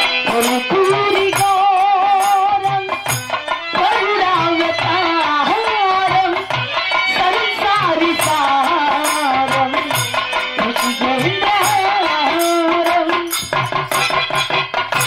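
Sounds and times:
rhythmic percussion: 0.0s - 15.0s
steady drum beat: 0.0s - 15.0s
woman singing folk song: 0.3s - 3.0s, 3.7s - 10.0s, 10.6s - 13.4s.

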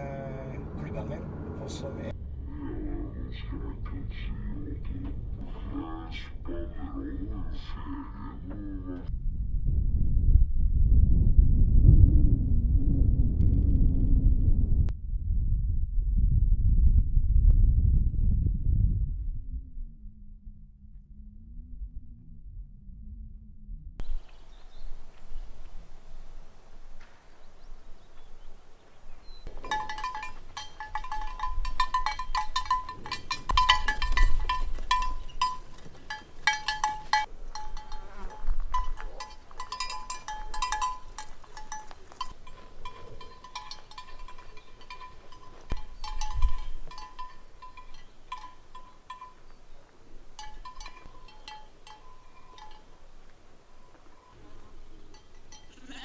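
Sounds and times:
low rumbles: 0.0s - 56.0s
sheep bells clanking: 29.4s - 56.0s.

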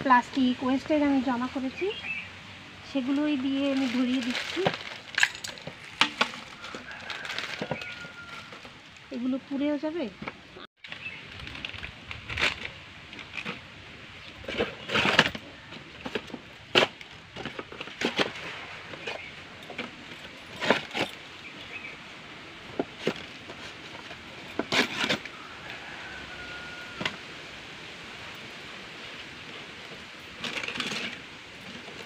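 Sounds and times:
plastic wrappers crinkling: 3.1s - 8.7s.

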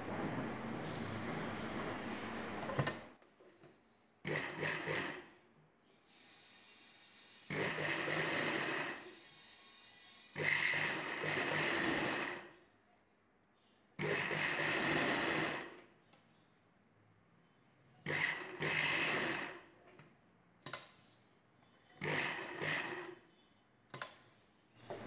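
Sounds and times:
sewing machine stitching: 4.2s - 5.4s, 7.5s - 9.1s, 10.4s - 12.6s, 14.0s - 15.9s, 18.0s - 20.1s, 22.0s - 23.2s.

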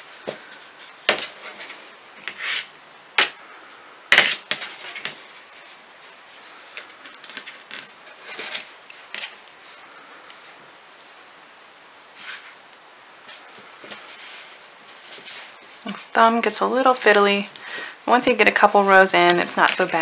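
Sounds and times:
yarn and hands rustling: 0.0s - 20.0s.

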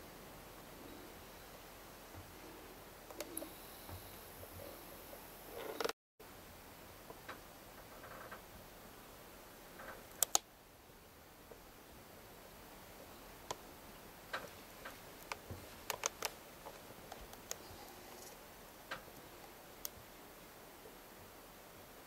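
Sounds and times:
background hiss: 0.0s - 22.0s
sharp clicks and ticks: 10.1s - 10.5s, 14.3s - 16.4s.

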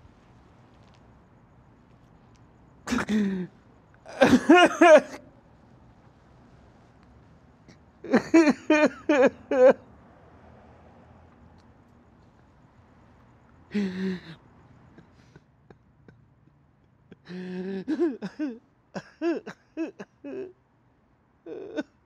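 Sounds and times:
man coughing: 2.9s - 5.3s, 8.1s - 9.8s, 13.7s - 14.4s, 17.2s - 20.5s.

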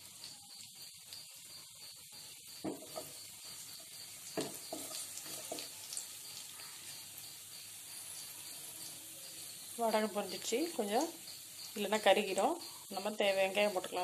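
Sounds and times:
food frying in hot oil: 0.0s - 14.0s
oil popping: 2.6s - 3.3s, 4.2s - 6.8s.

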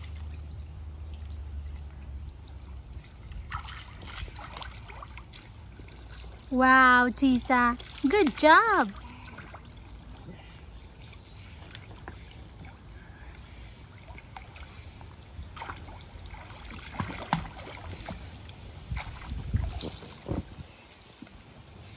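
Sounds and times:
low steady rumble: 0.0s - 21.9s
soft splashes: 0.0s - 21.9s
water lapping and sloshing: 0.0s - 21.9s.

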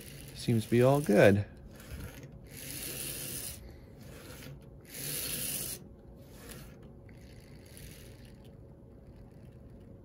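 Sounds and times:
model train motor whirring: 0.0s - 9.9s.

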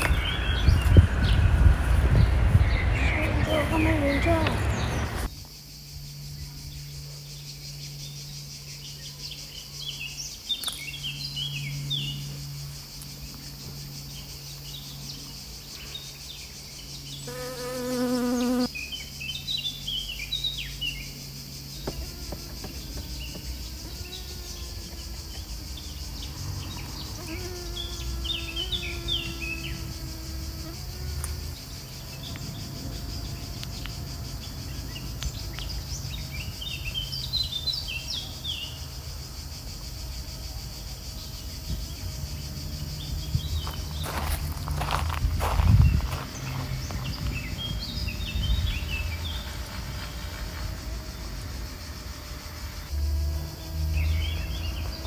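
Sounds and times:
small birds chirping: 0.0s - 39.4s, 40.4s - 51.3s, 53.5s - 55.0s
bees buzzing: 17.2s - 18.8s, 20.6s - 55.0s.

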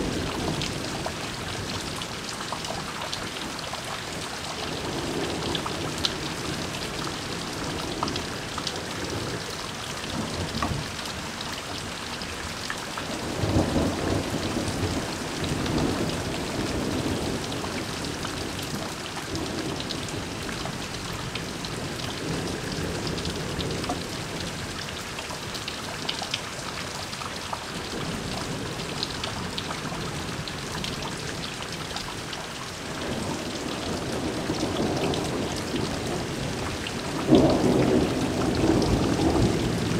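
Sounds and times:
heavy rain falling: 0.0s - 39.9s
thunder rumbling: 33.1s - 39.9s.

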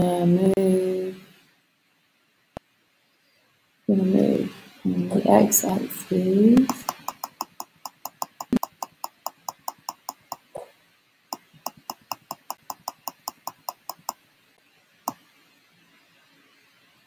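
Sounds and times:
computer mouse clicking: 6.6s - 10.6s, 11.4s - 14.2s.

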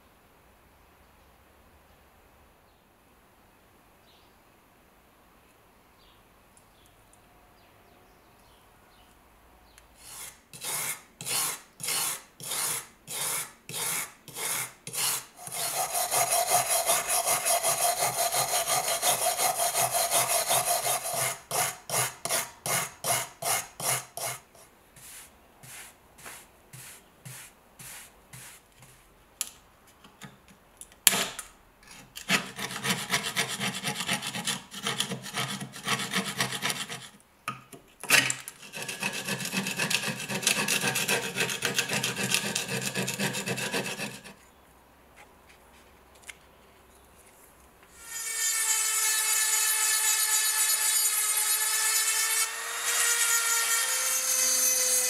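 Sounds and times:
metal tool scraping rust: 10.0s - 24.4s, 38.5s - 44.4s
wire brush scrubbing metal: 10.1s - 24.4s.

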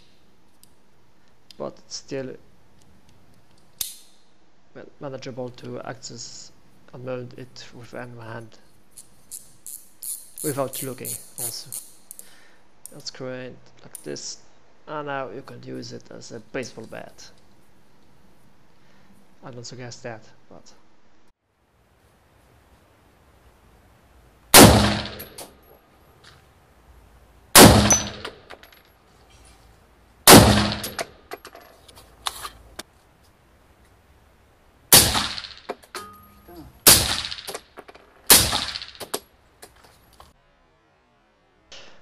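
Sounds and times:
rifle shots with ringing echo: 24.5s - 25.5s, 27.6s - 28.4s, 30.3s - 31.1s, 34.9s - 35.7s, 36.8s - 37.6s, 38.3s - 39.1s
suppressed rifle shots: 24.5s - 25.5s, 27.6s - 28.4s, 30.3s - 31.1s, 34.9s - 35.7s, 36.8s - 37.6s, 38.3s - 39.2s.

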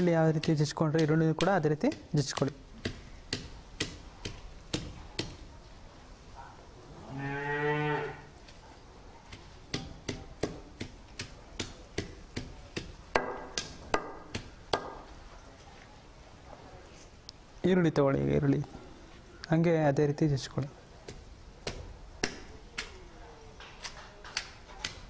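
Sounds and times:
cow mooing: 7.0s - 8.3s
stone roller pounding: 9.3s - 15.0s.

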